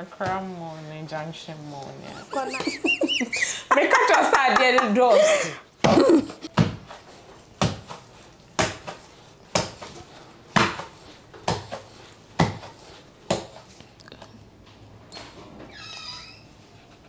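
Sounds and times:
pestle pounding dough in mortar: 8.6s - 13.7s.

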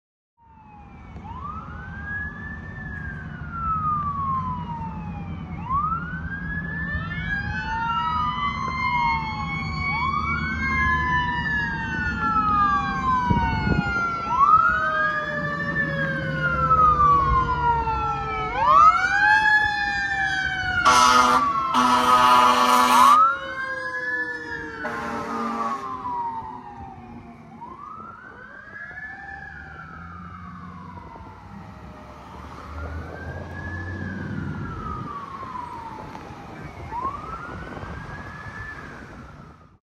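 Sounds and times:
fire engine siren wailing: 0.4s - 39.8s
slower siren tone: 0.4s - 39.8s
air horn blasts: 20.8s - 23.3s, 24.8s - 26.0s.

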